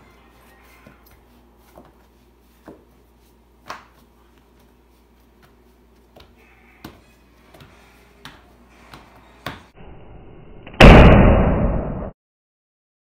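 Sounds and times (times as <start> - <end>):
hands patting dough: 0.6 - 9.7
loud harsh noise burst: 9.8 - 12.1.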